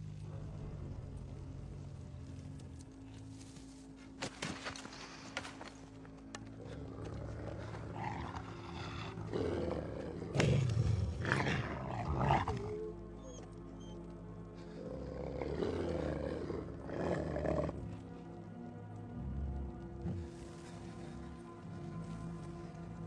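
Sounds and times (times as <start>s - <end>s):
dramatic film score: 0.0s - 23.0s
wolves growling: 6.2s - 23.0s.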